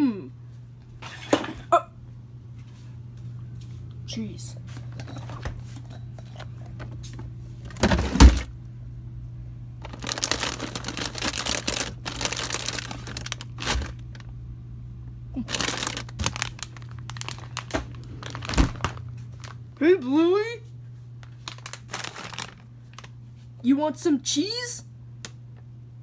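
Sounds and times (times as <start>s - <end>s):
steady low hum: 0.0s - 26.0s
crinkling plastic packaging: 9.8s - 14.4s, 15.4s - 19.8s, 21.2s - 23.2s.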